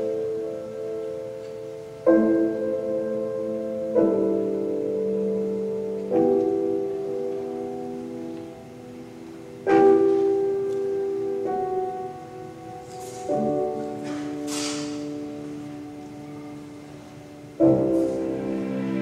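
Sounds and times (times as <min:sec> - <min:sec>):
slow piano chords: 0:00.0 - 0:19.0.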